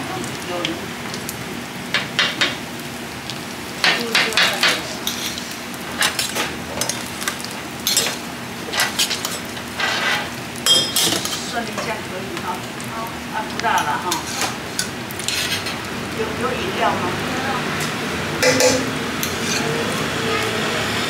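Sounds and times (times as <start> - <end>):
oil sizzling on a griddle: 0.0 - 21.0
metal spatula scraping and clinking: 5.0 - 5.4, 6.0 - 11.9, 14.1 - 15.8, 18.4 - 19.8.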